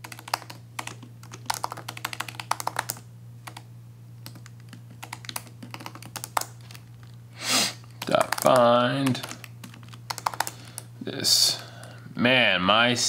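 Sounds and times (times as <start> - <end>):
laptop keyboard typing: 0.0 - 7.2, 7.8 - 10.9
steady low hum: 0.0 - 13.0.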